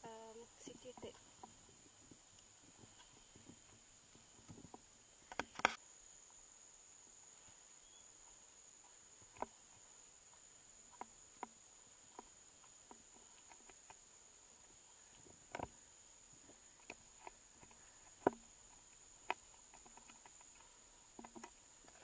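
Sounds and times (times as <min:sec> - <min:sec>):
sharp clicks and crackles: 0:04.4 - 0:05.8, 0:16.8 - 0:22.0.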